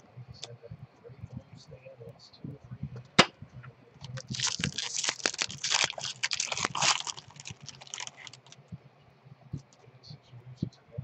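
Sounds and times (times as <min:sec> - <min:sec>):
foil wrapper crinkling: 0:04.0 - 0:08.6.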